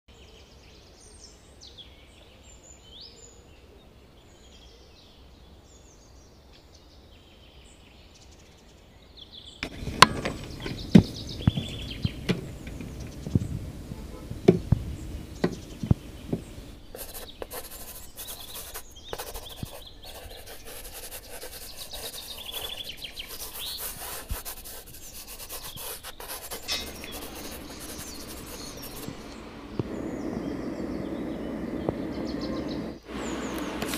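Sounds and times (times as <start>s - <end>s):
birds chirping: 7.6s - 33.9s
sharp knocks and taps: 9.6s - 17.7s, 25.7s - 29.2s
pencil scratching on paper: 9.6s - 29.3s.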